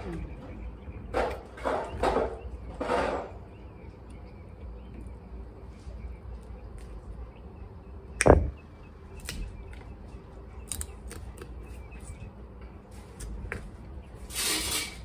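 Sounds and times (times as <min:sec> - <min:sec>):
small snaps and clicks: 0:10.6 - 0:11.6
crab shells cracking: 0:10.7 - 0:11.6.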